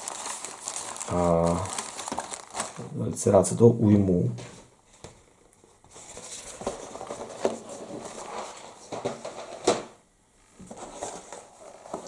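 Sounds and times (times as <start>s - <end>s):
packaging rustling: 0.0s - 2.9s, 5.0s - 9.8s, 10.7s - 12.0s.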